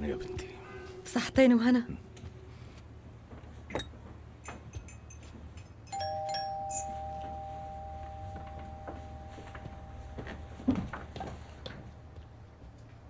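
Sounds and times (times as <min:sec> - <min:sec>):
two-note doorbell chime: 0:05.9 - 0:12.1.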